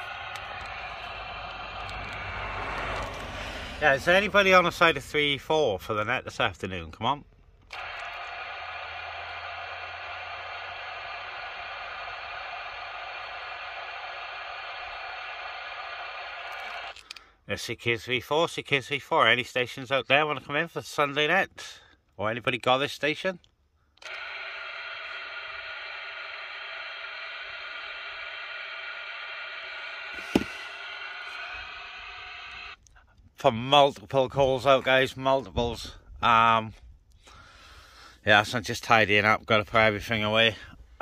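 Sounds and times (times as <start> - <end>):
radio receiver hiss: 0.0 - 6.4, 7.7 - 17.2, 24.0 - 33.0
sharp knock: 30.2 - 30.6.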